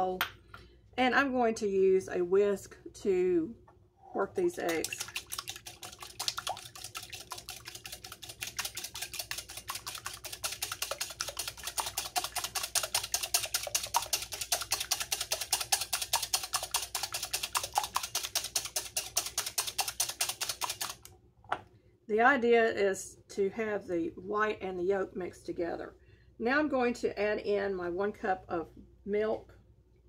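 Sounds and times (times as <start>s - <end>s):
whisk clicking on glass bowl: 4.6s - 21.1s.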